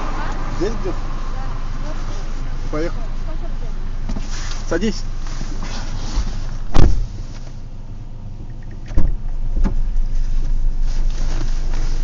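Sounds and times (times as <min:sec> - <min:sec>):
car engine idling: 0:00.0 - 0:12.0
car door slamming: 0:05.6 - 0:07.2, 0:08.8 - 0:09.9.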